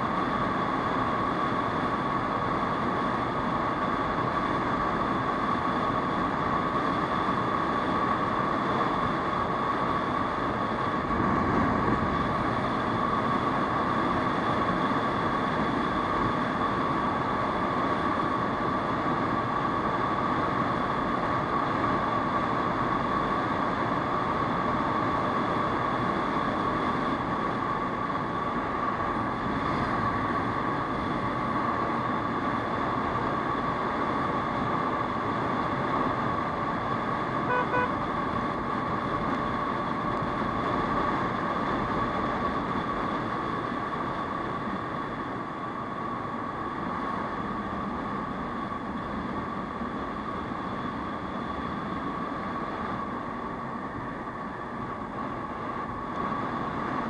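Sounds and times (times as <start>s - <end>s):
constant high hum: 0.0s - 57.0s
scooter engine and road noise: 0.0s - 57.0s
horn beeps: 37.4s - 38.0s.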